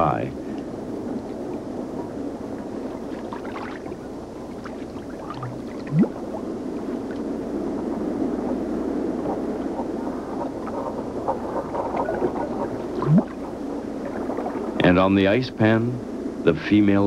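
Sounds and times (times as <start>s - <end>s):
water noise: 0.0s - 16.4s
wind: 0.0s - 17.0s.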